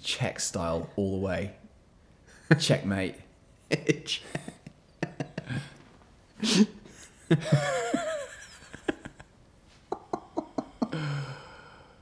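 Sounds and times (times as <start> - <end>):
men laughing: 3.7 - 11.3.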